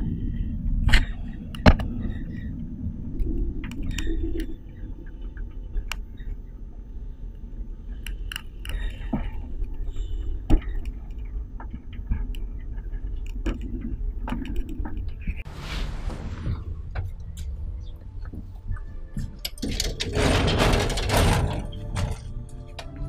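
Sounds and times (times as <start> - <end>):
funicular car rumbling on track: 0.0 - 6.7, 9.1 - 23.0
clicks and rattles: 19.2 - 23.0.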